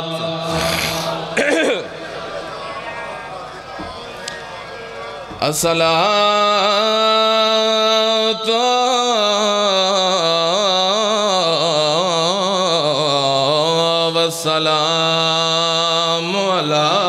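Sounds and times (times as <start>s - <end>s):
man chanting into a microphone: 0.0s - 1.9s, 5.3s - 17.0s.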